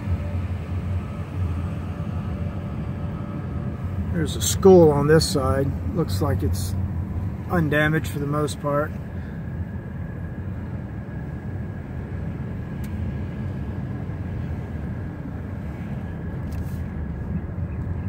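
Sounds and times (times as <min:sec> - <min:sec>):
engine and tyre rumble: 0:00.0 - 0:18.0.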